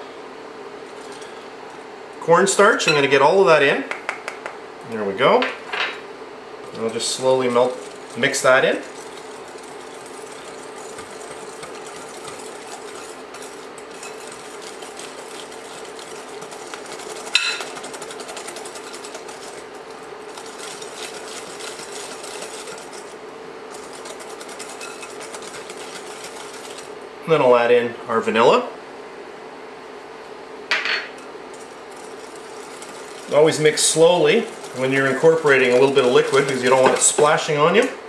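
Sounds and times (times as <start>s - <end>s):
whisk scraping glass bowl: 6.6s - 27.0s, 31.2s - 37.8s.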